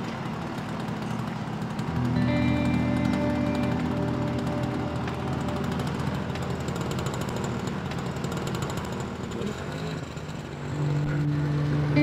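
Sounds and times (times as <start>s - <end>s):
small motorcycle engine: 0.0s - 12.0s
sustained music notes: 1.9s - 7.8s, 10.8s - 12.0s.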